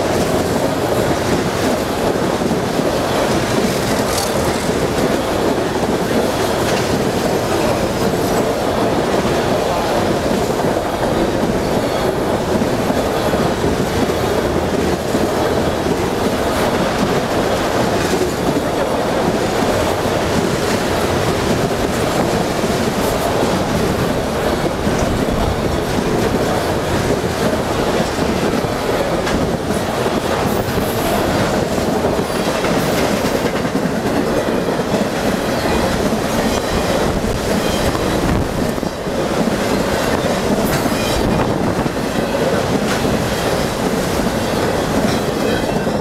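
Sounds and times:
freight train wheels clicking on rails: 0:00.0 - 0:46.0.

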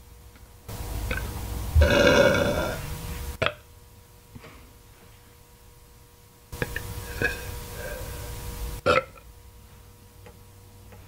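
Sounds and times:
woman burping: 0:01.1 - 0:02.8, 0:06.6 - 0:08.0, 0:08.8 - 0:09.2.

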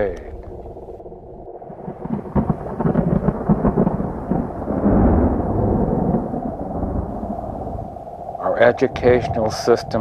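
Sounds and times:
crackling thunder-like rumble: 0:00.0 - 0:10.0.

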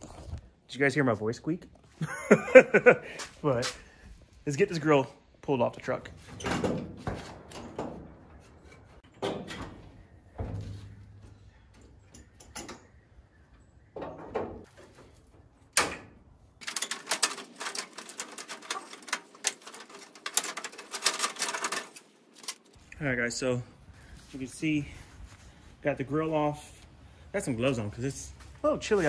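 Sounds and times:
rapid clicking and rattling: 0:16.6 - 0:22.8.

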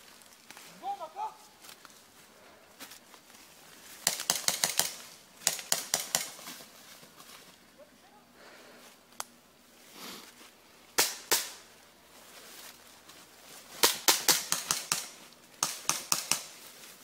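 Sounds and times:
airsoft gun shots: 0:04.0 - 0:06.4, 0:11.0 - 0:11.6, 0:13.8 - 0:16.5.

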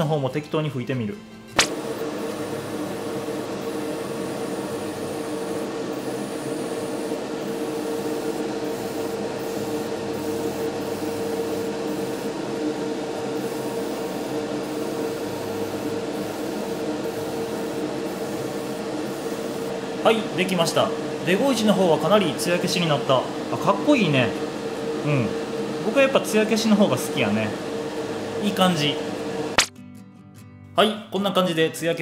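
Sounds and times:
compressor humming: 0:00.0 - 0:29.7
airbrush hissing: 0:01.6 - 0:12.4, 0:13.4 - 0:19.7.

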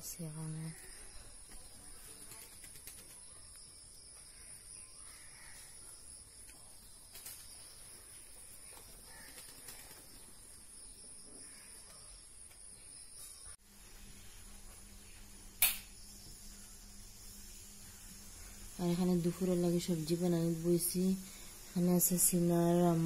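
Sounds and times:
insect drone: 0:00.0 - 0:23.0
distant bird calls: 0:00.5 - 0:13.6.

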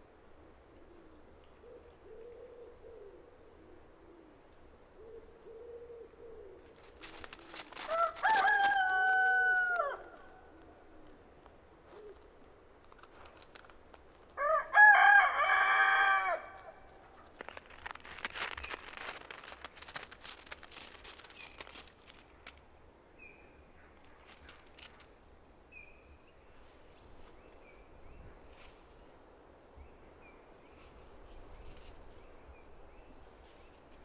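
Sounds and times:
scratchy rustling: 0:06.8 - 0:09.3, 0:17.0 - 0:22.6
rooster crowing: 0:07.8 - 0:10.4, 0:14.4 - 0:16.9.

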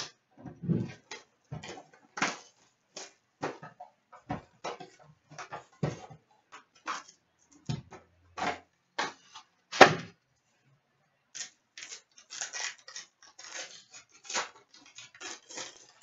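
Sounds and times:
wrapper and cardboard crinkling: 0:11.4 - 0:16.0.

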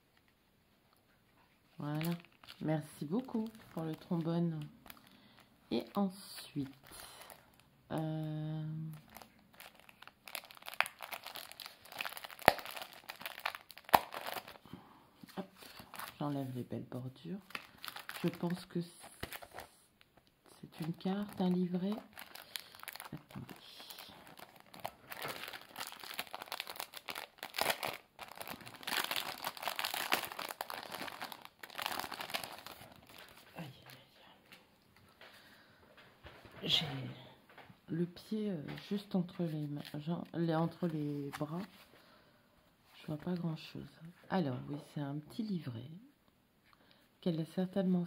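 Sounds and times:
cellophane sleeve crinkling: 0:01.7 - 0:34.0.

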